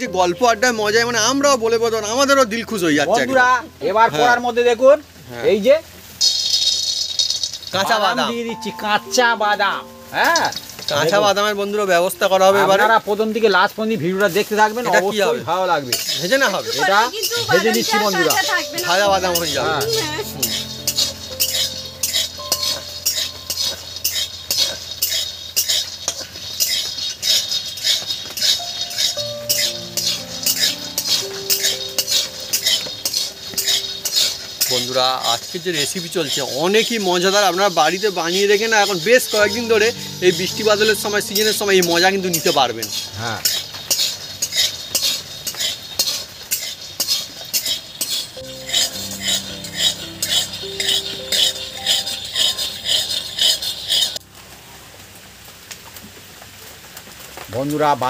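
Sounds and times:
faint musical tones: 0:00.0 - 0:05.9, 0:07.7 - 0:26.5, 0:28.4 - 0:45.5, 0:48.4 - 0:56.9
metal spatula scraping pan: 0:06.2 - 0:07.8, 0:15.9 - 0:54.2
peanuts rattling in pan: 0:06.2 - 0:08.2, 0:15.6 - 0:40.0, 0:41.0 - 0:53.2.

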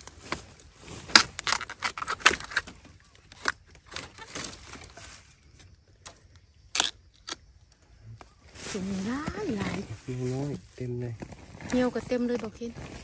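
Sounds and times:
bamboo stems crackling: 0:00.0 - 0:13.0.

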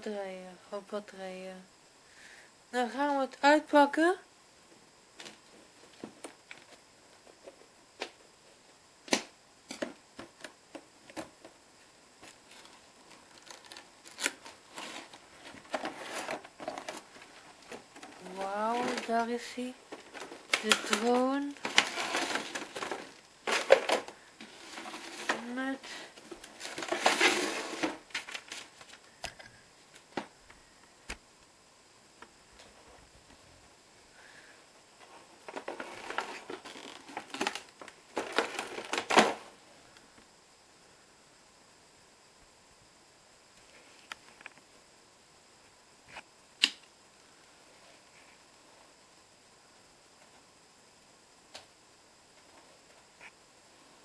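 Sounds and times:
cardboard rustling: 0:12.2 - 0:29.0, 0:35.0 - 0:39.4.

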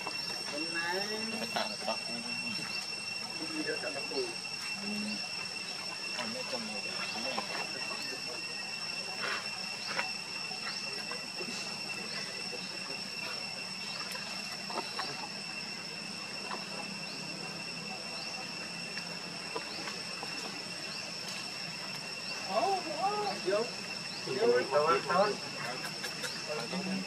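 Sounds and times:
high-pitched insect drone: 0:00.0 - 0:27.0.

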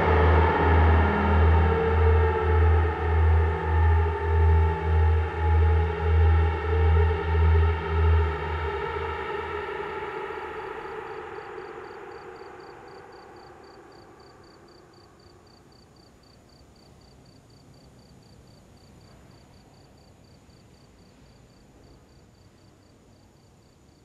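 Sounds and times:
ambient synth music: 0:00.0 - 0:15.7
cricket chirping: 0:00.0 - 0:24.0
low hiss of night ambience: 0:00.0 - 0:24.0.

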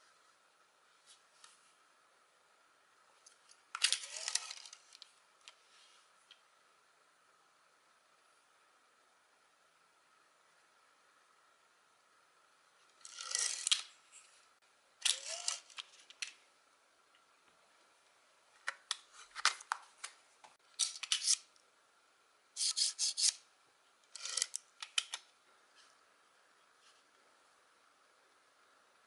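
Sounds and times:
staples clicking and scraping: 0:03.7 - 0:05.0, 0:13.0 - 0:13.9, 0:15.0 - 0:16.3, 0:20.8 - 0:21.5, 0:22.6 - 0:23.4, 0:24.1 - 0:25.2.

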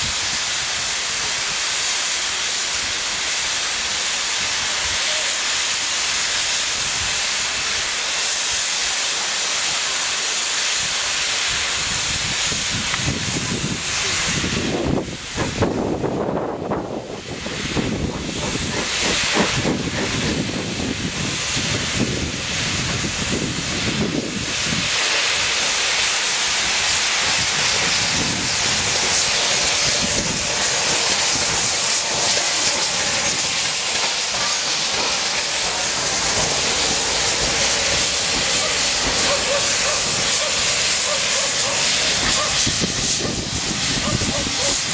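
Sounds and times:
steam locomotive hissing steam: 0:00.0 - 0:44.9.

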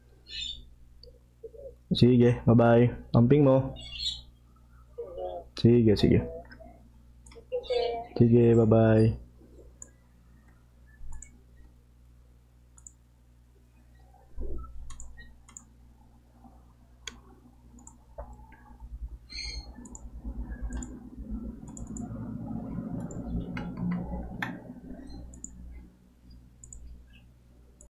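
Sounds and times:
sharp clicks: 0:12.8 - 0:13.0, 0:14.8 - 0:15.7, 0:20.7 - 0:21.0, 0:21.6 - 0:22.1, 0:23.0 - 0:24.6, 0:25.2 - 0:25.6, 0:26.3 - 0:26.9.

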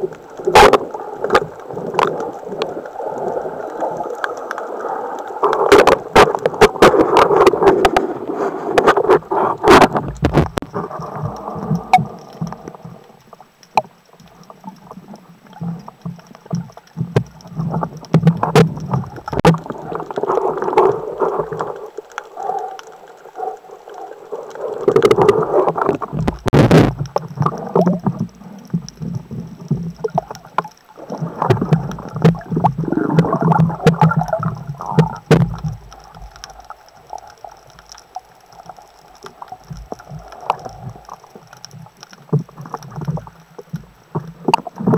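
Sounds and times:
water swishing underwater: 0:00.0 - 0:44.9.

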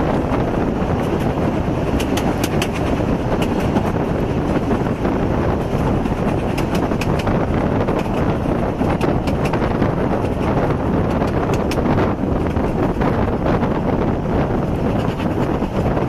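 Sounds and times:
railway carriage rumble: 0:00.0 - 0:16.0
wind buffeting microphone: 0:00.0 - 0:16.0
sharp clicks and rattles: 0:01.0 - 0:04.9, 0:05.6 - 0:13.0.

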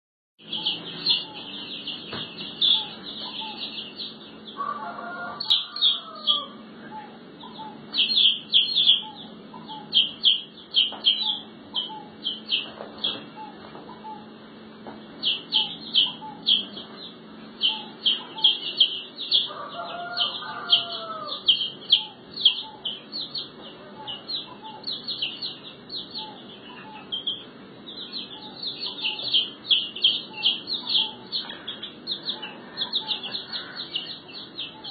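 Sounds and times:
chicks peeping: 0:00.4 - 0:34.9
chicken call: 0:04.6 - 0:07.8, 0:19.4 - 0:22.8.

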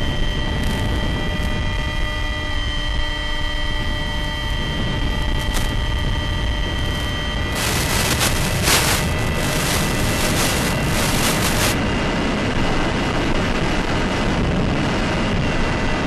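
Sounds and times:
model plane motor whine: 0:00.0 - 0:08.0
wind rumble: 0:00.0 - 0:16.0
loud static hiss: 0:04.2 - 0:11.8.

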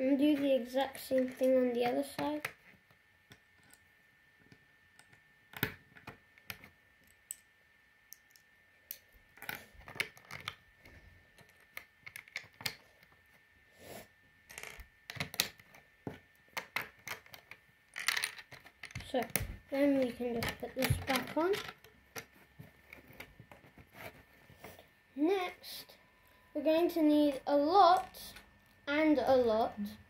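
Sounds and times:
plastic bricks clicking together: 0:11.4 - 0:12.8, 0:16.5 - 0:22.3.

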